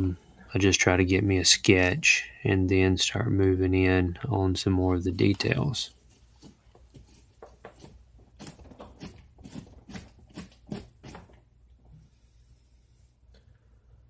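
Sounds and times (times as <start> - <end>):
tool scraping pumpkin: 6.0 - 11.4.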